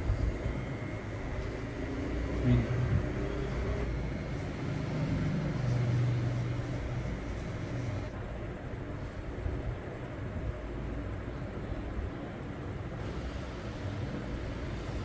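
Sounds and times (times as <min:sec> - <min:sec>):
beard trimmer buzzing: 0:00.6 - 0:08.1.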